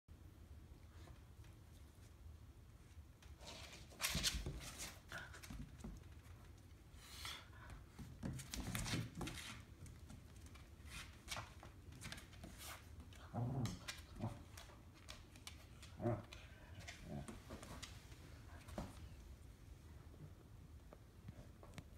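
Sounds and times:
dogs scuffling: 0:03.2 - 0:19.2
claws clicking on vinyl floor: 0:03.5 - 0:18.0
dog growling: 0:13.2 - 0:14.5.

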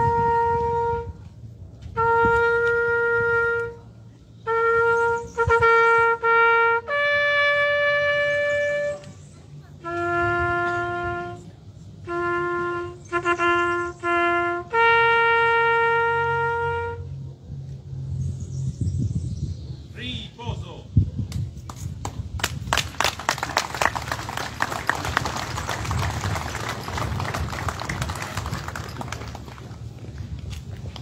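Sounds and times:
solo trumpet bugle-style call: 0:00.0 - 0:09.2, 0:09.8 - 0:17.2.

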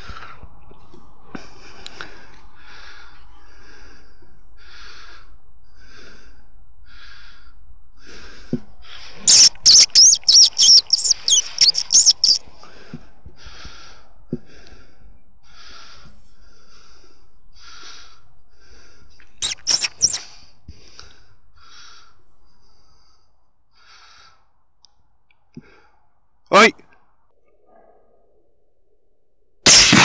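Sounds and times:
high gliding squeaks: 0:09.3 - 0:12.4, 0:19.4 - 0:20.2.

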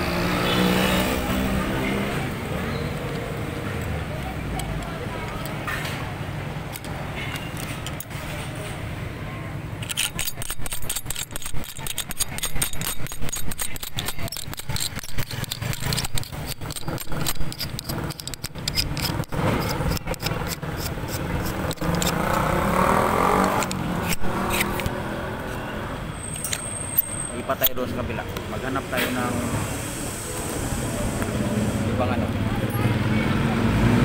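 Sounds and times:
vehicle passing: 0:00.0 - 0:04.2, 0:19.0 - 0:26.2, 0:27.3 - 0:34.0
traffic engine hum: 0:00.0 - 0:34.0
rapid clicks and rattles: 0:09.8 - 0:22.6.

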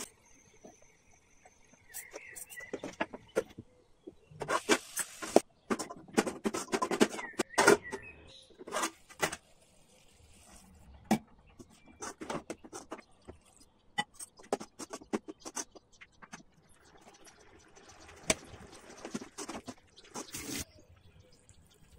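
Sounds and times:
plastic spatula scraping a pan: 0:04.4 - 0:10.8, 0:11.4 - 0:13.4, 0:14.2 - 0:15.8, 0:18.9 - 0:20.7.

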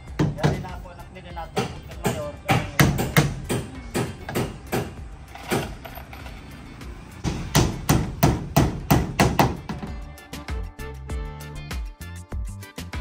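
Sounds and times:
hammer driving nails: 0:01.6 - 0:06.3, 0:07.2 - 0:09.9.

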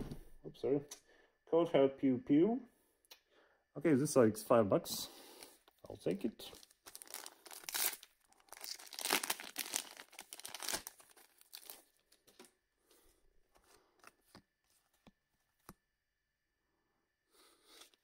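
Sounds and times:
cards rustling: 0:06.5 - 0:12.5
wrapper tearing and crinkling: 0:06.5 - 0:12.5.

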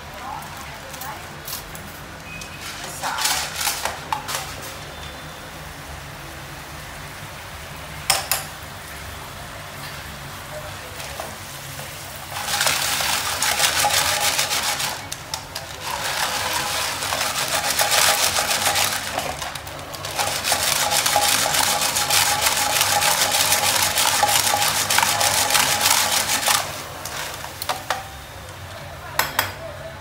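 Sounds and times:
snail shells rattling in a pan: 0:02.7 - 0:04.6, 0:12.1 - 0:28.7
butter sizzling: 0:11.4 - 0:28.2.

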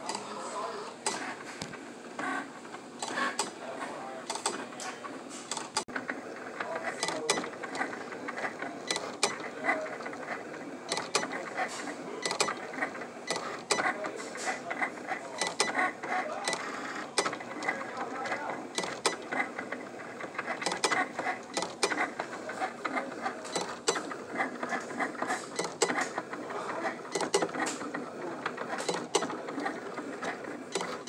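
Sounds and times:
cutting machine motors whirring: 0:00.0 - 0:31.0
machine clicks: 0:01.0 - 0:03.6, 0:04.2 - 0:31.0.

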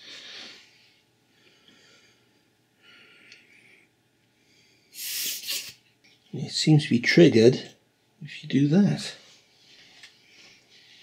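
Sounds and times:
puffs of breath: 0:00.0 - 0:05.8.

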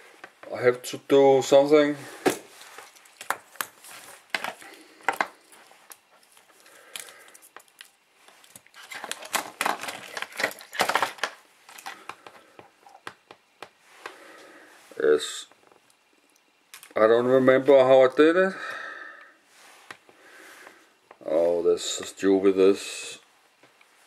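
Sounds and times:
hands handling objects on tabletop: 0:02.2 - 0:14.2.

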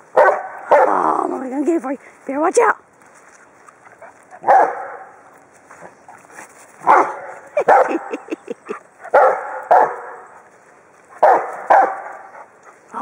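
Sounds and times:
dog barking: 0:00.2 - 0:00.9, 0:04.4 - 0:05.1, 0:06.8 - 0:08.0, 0:09.1 - 0:10.2, 0:11.2 - 0:12.3.

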